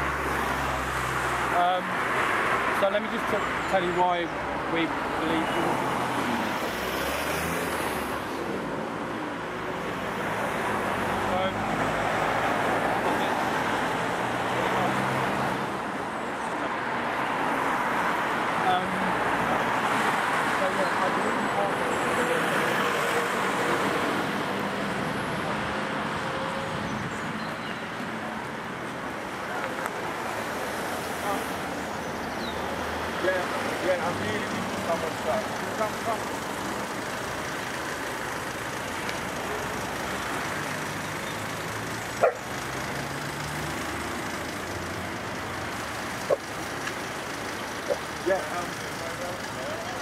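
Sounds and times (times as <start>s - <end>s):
passing car engines humming: 0.0s - 50.0s
street noise: 0.0s - 50.0s
tyres hissing on wet road: 5.6s - 8.2s.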